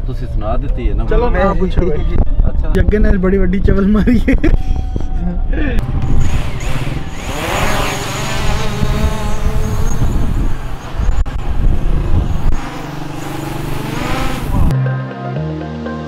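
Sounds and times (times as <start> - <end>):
drone motors whining: 4.6 - 14.7.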